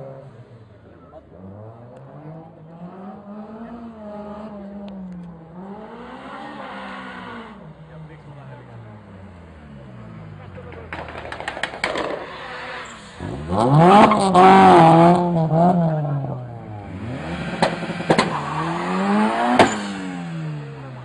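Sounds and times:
car engine revving hard: 0:05.6 - 0:07.6, 0:12.4 - 0:21.0.

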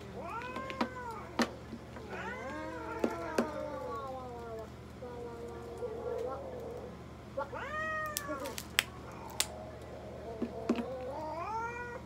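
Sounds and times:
cat meowing: 0:02.0 - 0:04.6.

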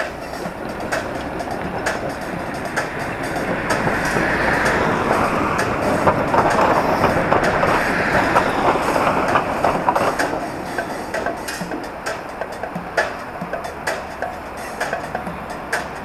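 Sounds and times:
city street traffic: 0:00.0 - 0:16.0.

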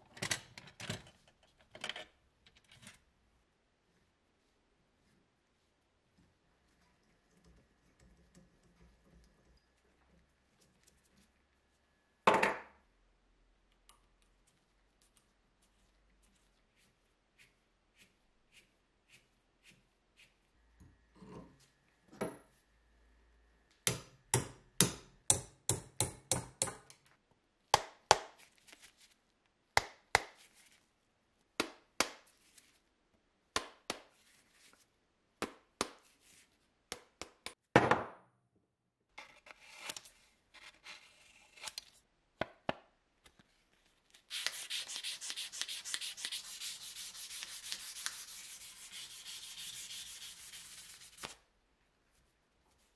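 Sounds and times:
sandpaper rubbing metal: 0:44.3 - 0:51.3.

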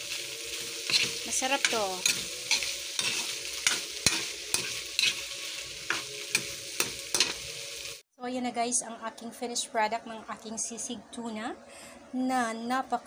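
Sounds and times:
food sizzling in a pan: 0:00.0 - 0:08.0
utensil scraping a pan: 0:00.6 - 0:07.4.

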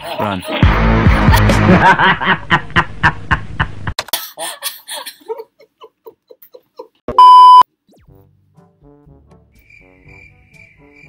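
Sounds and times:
man laughing: 0:00.0 - 0:07.1
loud steady beep: 0:07.2 - 0:07.6.

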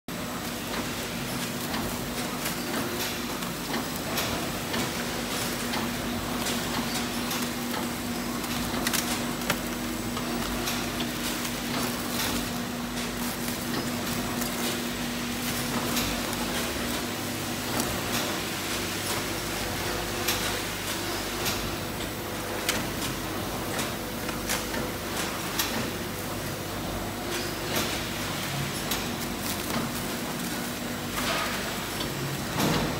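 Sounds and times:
machine motor hum: 0:00.1 - 0:32.9.

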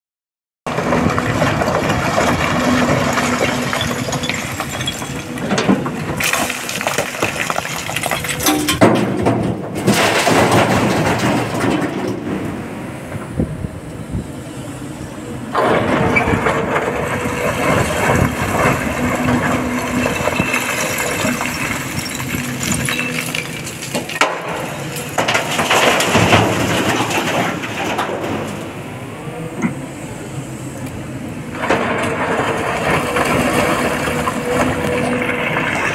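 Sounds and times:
excavator diesel engine: 0:00.7 - 0:08.9, 0:09.5 - 0:35.9
rocks clattering: 0:00.9 - 0:12.1, 0:15.6 - 0:28.5.

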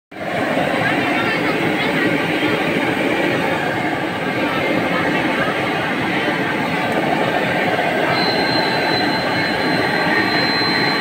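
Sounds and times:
loud rushing noise: 0:00.1 - 0:11.0
thin high whine: 0:06.2 - 0:11.0.

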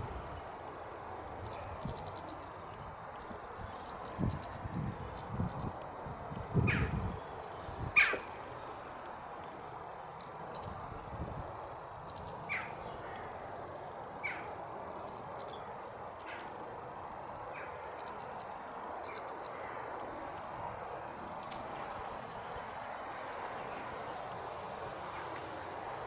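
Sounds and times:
harsh bird calls: 0:12.1 - 0:13.3, 0:14.2 - 0:16.5.

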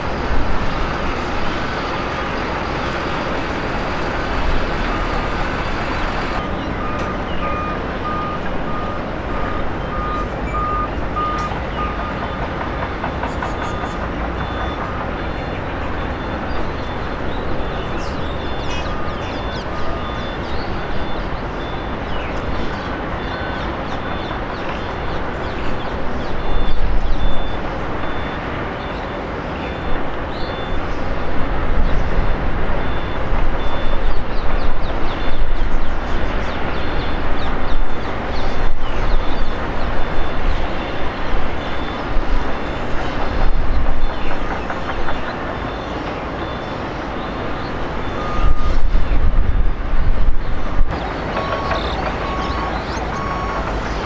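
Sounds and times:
airport noise: 0:00.0 - 0:54.0
distant jet engine rumble: 0:00.0 - 0:54.0
faint high beep: 0:06.8 - 0:12.5, 0:26.4 - 0:29.1, 0:48.0 - 0:48.8, 0:51.4 - 0:53.7.

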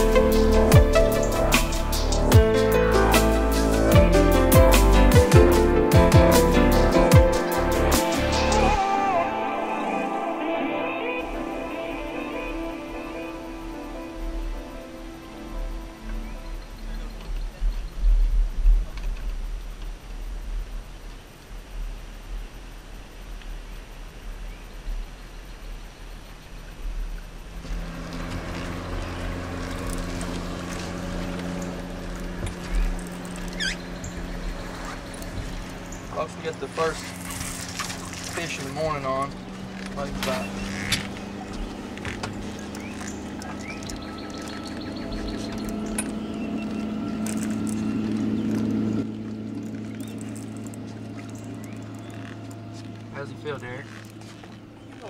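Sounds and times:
motorboat engine: 0:00.0 - 0:20.4, 0:27.1 - 0:55.0
wind: 0:00.0 - 0:55.0
water hissing: 0:27.6 - 0:43.8.

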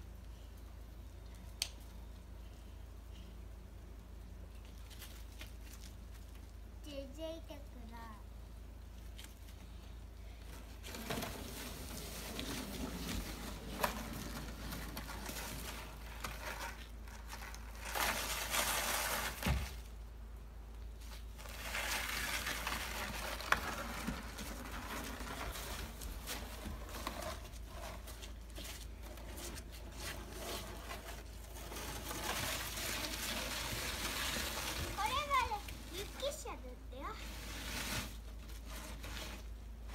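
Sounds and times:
plastic shovel scraping slush on wood: 0:10.8 - 0:19.7, 0:21.4 - 0:39.5.

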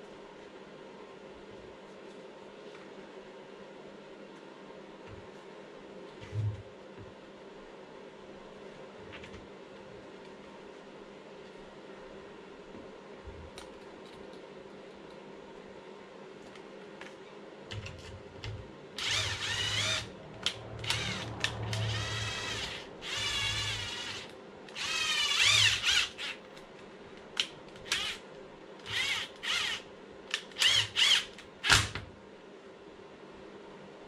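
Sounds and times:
cordless driver motor whine: 0:19.0 - 0:26.4, 0:27.8 - 0:28.2, 0:28.8 - 0:29.9, 0:30.6 - 0:31.3.

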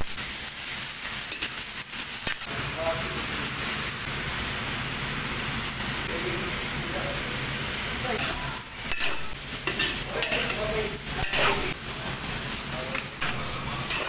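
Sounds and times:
vegetables sizzling in a wok: 0:00.0 - 0:14.0
spatula scraping a wok: 0:08.2 - 0:12.6, 0:13.2 - 0:14.0.

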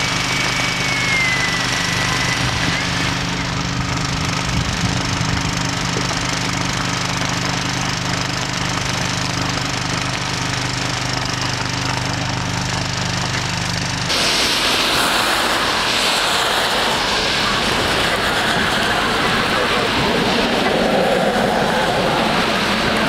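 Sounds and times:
hose spraying water: 0:00.0 - 0:03.8, 0:14.1 - 0:23.0
engine running steadily: 0:00.0 - 0:23.0.

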